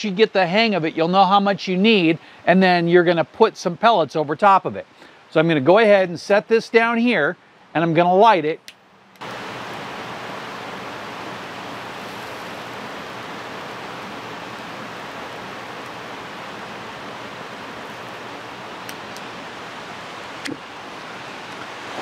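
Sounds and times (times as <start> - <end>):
handheld torch hissing: 10.8 - 19.4.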